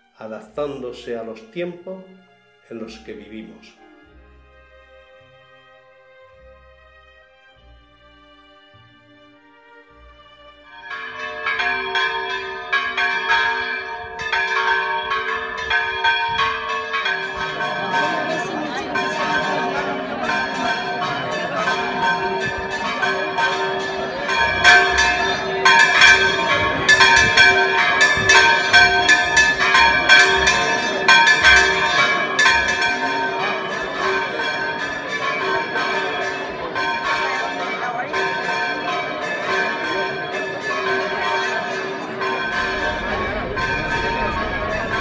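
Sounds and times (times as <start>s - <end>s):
church bells pealing: 10.6s - 45.0s.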